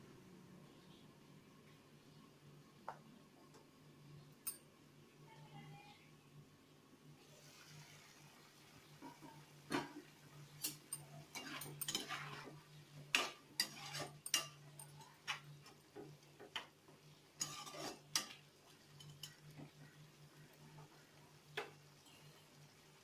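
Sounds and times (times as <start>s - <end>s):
metal spatula scraping a pan: 9.0s - 15.8s, 17.3s - 21.0s.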